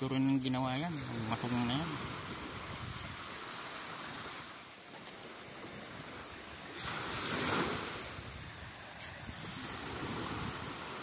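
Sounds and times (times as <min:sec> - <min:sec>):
surf washing onto sandy beach: 0:00.4 - 0:11.0.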